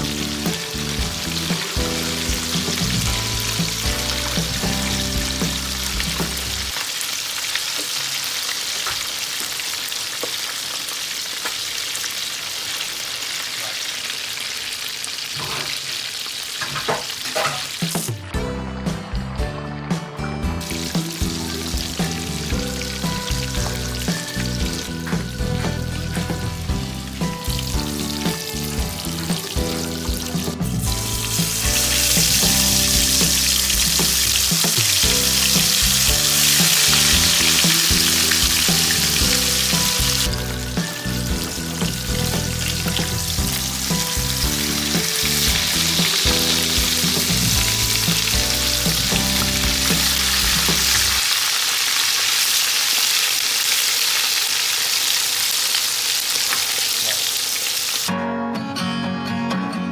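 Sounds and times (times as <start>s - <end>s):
background music with low notes: 0.0s - 6.7s, 17.8s - 51.2s
fish deep-frying in hot oil: 0.0s - 18.2s, 20.6s - 58.1s.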